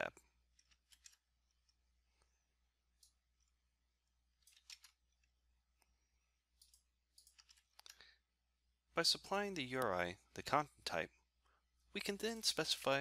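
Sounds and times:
computer mouse and keyboard clicks: 0.5 - 1.8, 4.4 - 5.4, 6.6 - 8.0.

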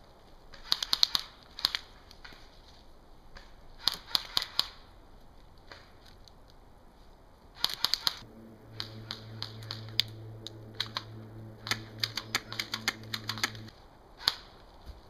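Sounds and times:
steady low hum: 8.2 - 13.7.

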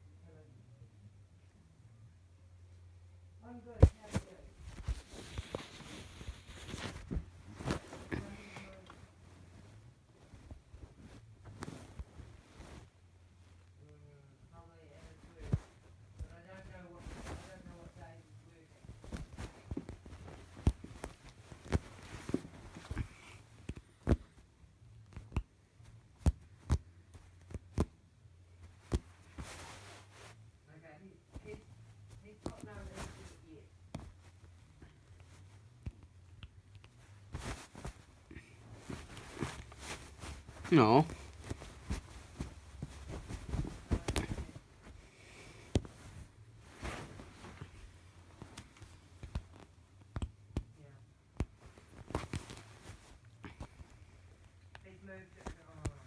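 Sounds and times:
knit fabric rustling: 3.4 - 56.0
kitten clambering over fabric: 37.2 - 45.0.

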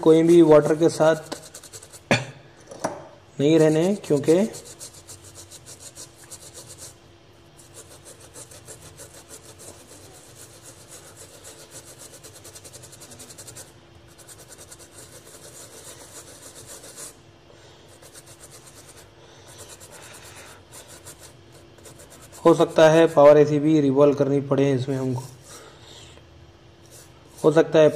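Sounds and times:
small brush scrubbing circuit board: 0.2 - 2.2, 3.4 - 17.2, 17.9 - 23.2, 26.8 - 27.9.

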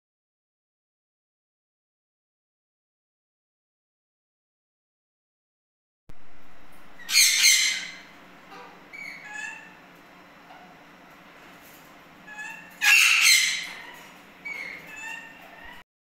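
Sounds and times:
parrot squawks: 7.0 - 9.8, 12.2 - 15.8.

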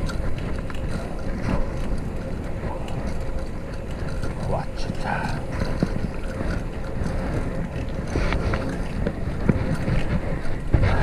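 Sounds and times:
bicycle road noise: 0.0 - 11.0
wind rumbling on microphone: 0.0 - 11.0.

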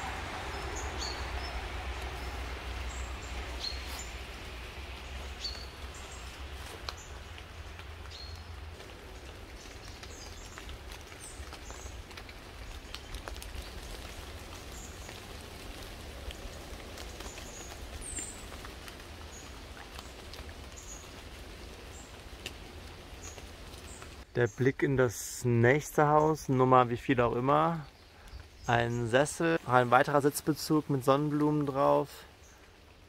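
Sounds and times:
low rumble: 0.0 - 11.2
small ticks: 6.6 - 24.2.

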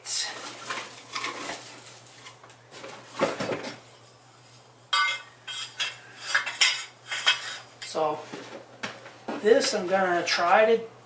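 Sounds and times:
ringing metal clank: 4.9 - 7.4.

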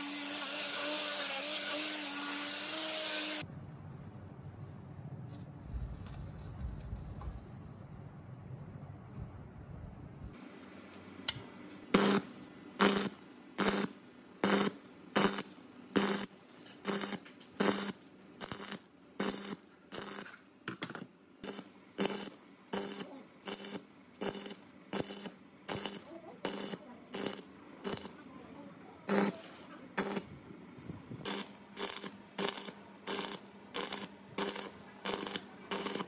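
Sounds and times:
welding arc buzzing: 0.0 - 3.4, 10.4 - 20.5, 21.4 - 28.3, 29.0 - 30.5, 31.2 - 36.0.

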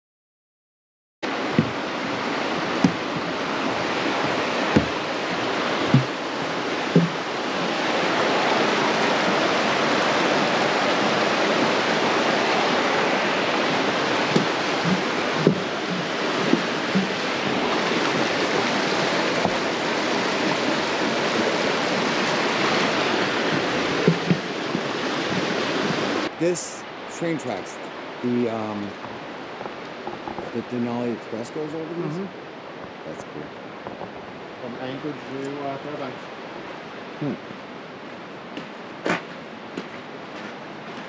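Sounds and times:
fast creek rushing: 1.2 - 41.0
footsteps on trail: 1.5 - 8.0, 13.6 - 26.3, 38.5 - 41.0.

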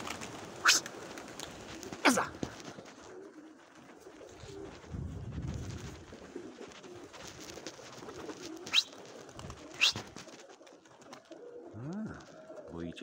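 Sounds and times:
wings flapping: 0.0 - 12.7
pigeons cooing: 0.0 - 13.0.

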